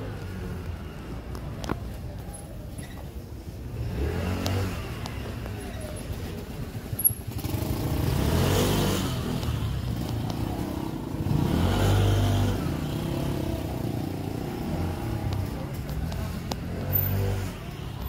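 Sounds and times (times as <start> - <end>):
vehicles passing on street: 0.0 - 18.0.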